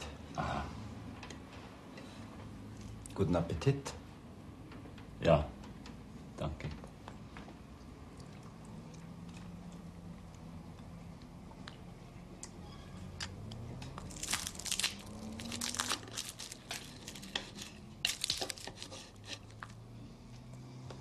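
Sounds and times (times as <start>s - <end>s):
knife and fork scraping a plate: 16.7s - 19.6s.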